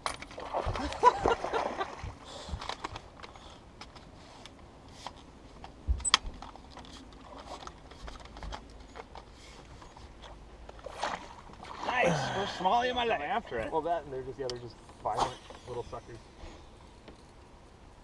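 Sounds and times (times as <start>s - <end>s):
fishing gear clicks and knocks: 0.0s - 0.4s, 2.4s - 11.6s.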